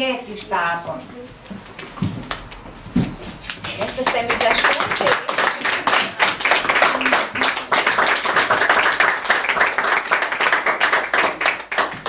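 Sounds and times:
audience clapping: 3.4 - 12.0.

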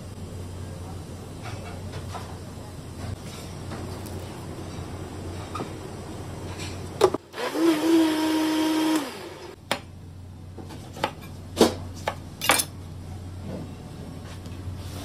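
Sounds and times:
blender motor running: 7.2 - 9.6.

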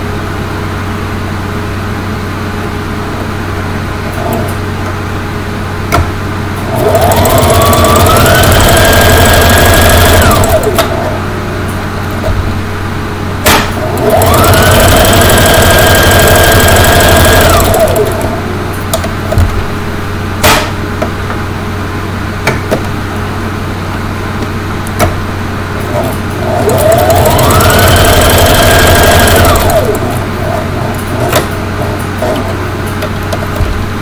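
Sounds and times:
sewing machine motor whine: 6.6 - 11.4, 13.8 - 18.6, 25.9 - 32.6.

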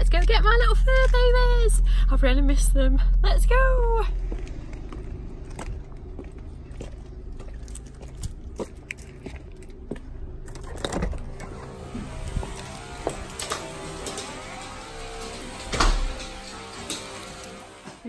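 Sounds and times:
low steady rumble: 0.0 - 13.0
footsteps: 4.1 - 18.0
handling clicks and rustles: 4.3 - 11.8.

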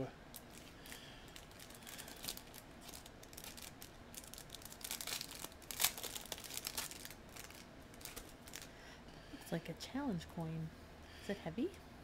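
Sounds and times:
wrapping crinkling and tearing: 0.3 - 8.7.

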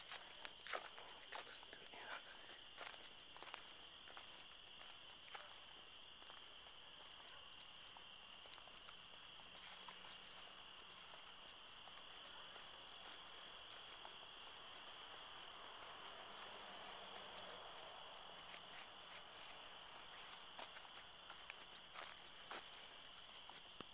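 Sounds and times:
insects trilling: 0.0 - 23.9.

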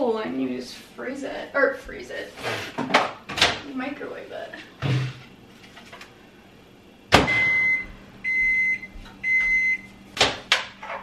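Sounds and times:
microwave running hum: 0.0 - 11.0
microwave beeps: 7.1 - 10.0.

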